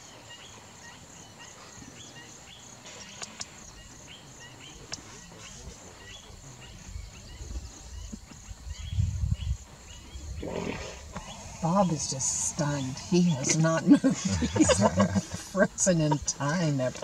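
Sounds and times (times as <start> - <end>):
insect chirping: 0.0 - 17.0
low rumbling on microphone: 4.8 - 16.5.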